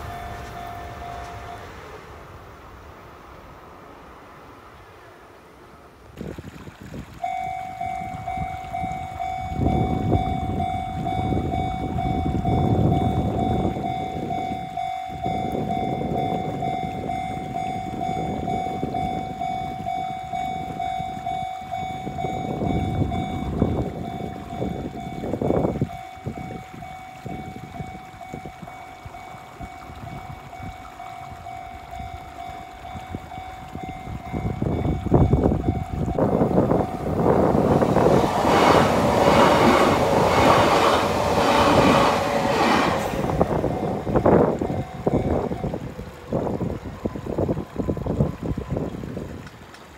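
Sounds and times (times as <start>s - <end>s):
level-crossing alarm ringing: 0.0s - 1.8s, 7.2s - 45.9s
low rumbling noise: 0.0s - 6.2s, 27.2s - 49.2s.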